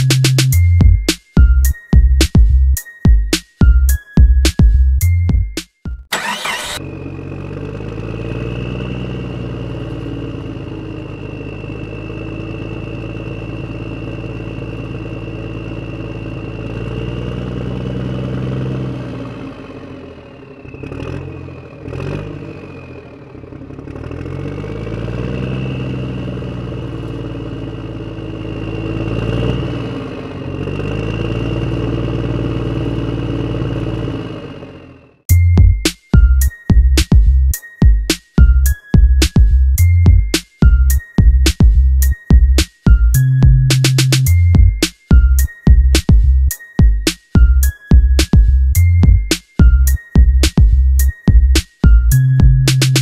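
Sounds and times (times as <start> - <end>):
tractor engine revving: 6.1 - 35.2.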